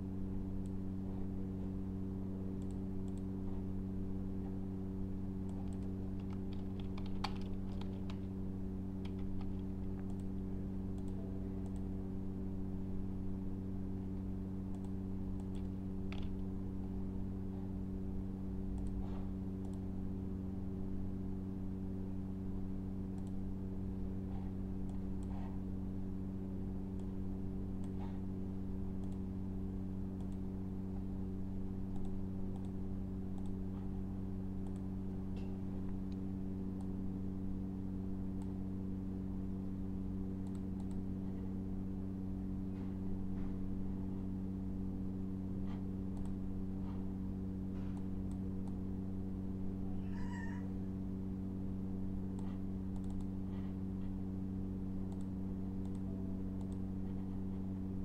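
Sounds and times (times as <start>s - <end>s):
low electrical hum: 0.0s - 58.0s
computer mouse and keyboard clicks: 5.4s - 8.3s, 14.7s - 16.5s, 52.4s - 53.3s.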